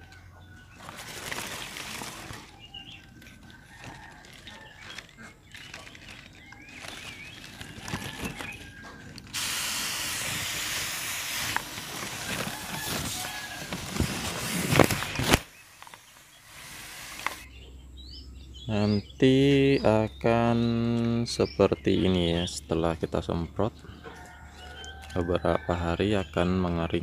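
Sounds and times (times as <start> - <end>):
sprayer hissing: 9.3 - 17.4.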